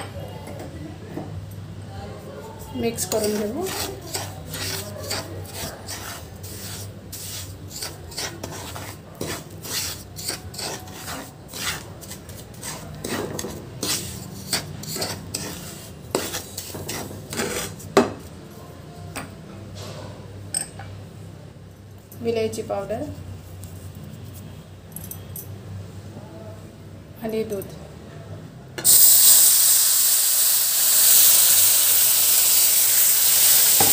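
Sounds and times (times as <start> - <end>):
spoon scraping semolina in pan: 2.6 - 18.0.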